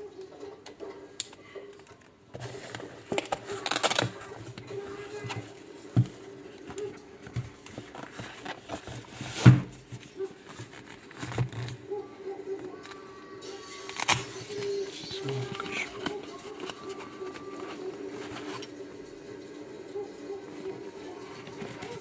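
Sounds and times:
handling rustling and clicks: 1.2 - 11.9, 13.9 - 18.8, 21.2 - 22.0.

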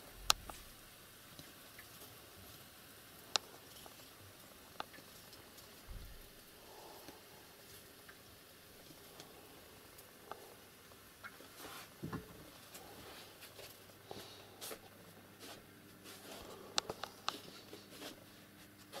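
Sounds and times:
small clicks and light knocks: 0.2 - 0.6, 4.7 - 6.2, 16.8 - 17.5.

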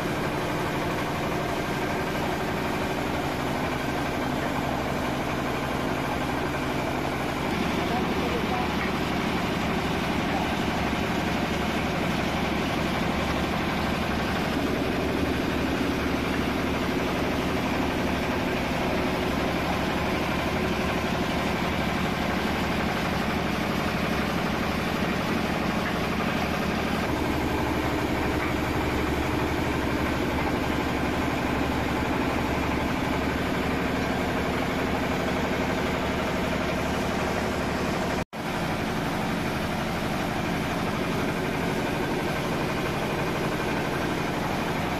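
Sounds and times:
diesel engine running: 0.0 - 44.9
rice huller husking: 0.0 - 44.9.

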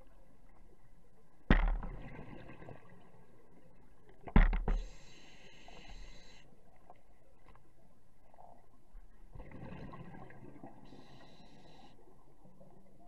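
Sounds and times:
regulator inhale hiss: 4.8 - 6.6, 10.8 - 12.1
exhaled bubbles gushing: 9.3 - 10.9.

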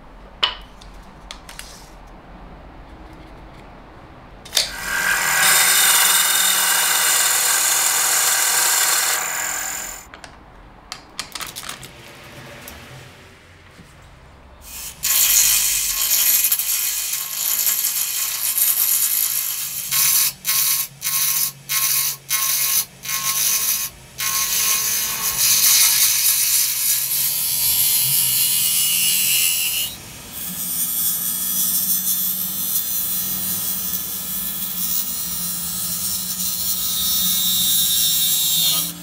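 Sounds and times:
lathe humming: 4.5 - 10.0.

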